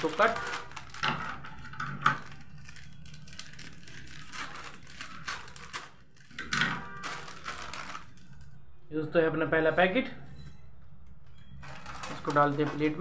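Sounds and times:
scissors cutting plastic: 0:00.0 - 0:08.5, 0:11.2 - 0:13.0
plastic packet crinkling: 0:00.0 - 0:08.6, 0:11.2 - 0:13.0.

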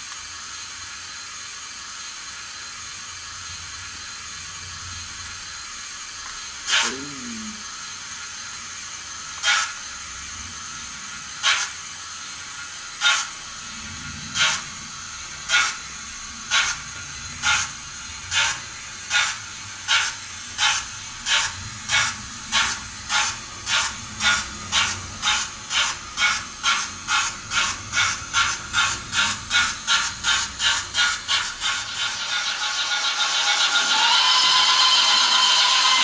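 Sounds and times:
steam locomotive chuffs from loudspeaker: 0:09.0 - 0:36.0.

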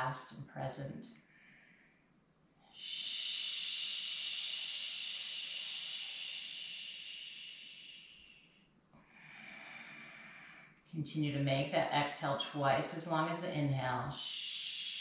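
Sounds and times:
woman exhaling slowly: 0:02.8 - 0:10.8.

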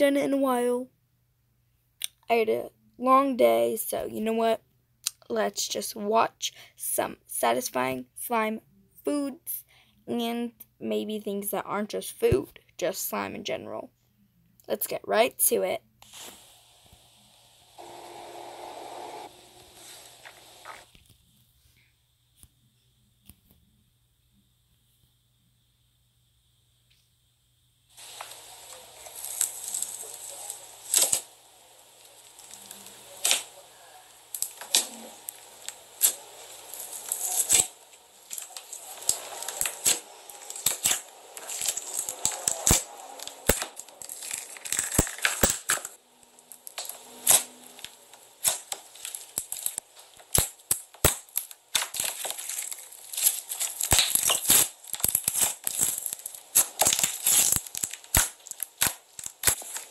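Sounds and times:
slime squeezed crackling pops: 0:48.4 - 0:59.8.

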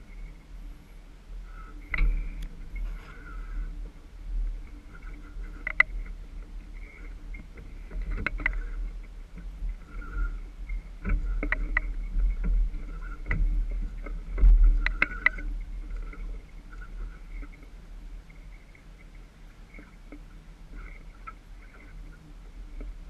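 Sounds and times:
wind and water rushing past hull: 0:00.0 - 0:23.0.

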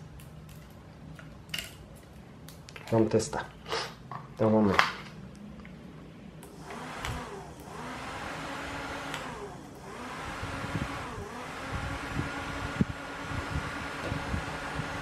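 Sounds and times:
small fan motors whirring: 0:06.4 - 0:15.0.

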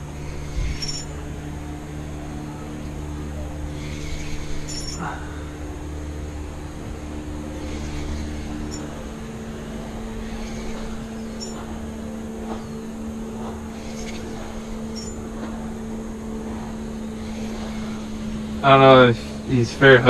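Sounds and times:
boat motor humming: 0:00.0 - 0:20.0
water and air hiss: 0:03.6 - 0:05.7, 0:07.3 - 0:20.0.

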